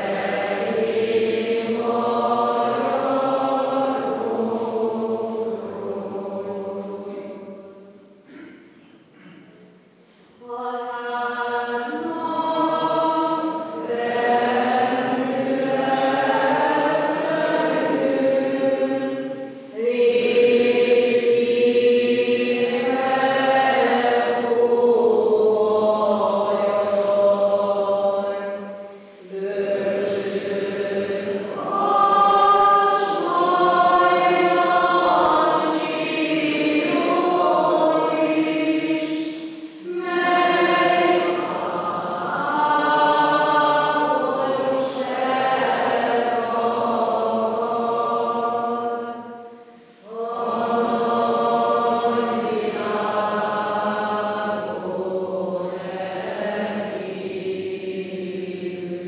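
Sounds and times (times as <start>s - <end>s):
choral singing: 0.0s - 8.5s, 10.4s - 59.0s
singers breathing: 9.9s - 10.4s, 28.8s - 29.3s, 39.3s - 39.9s, 49.5s - 50.1s.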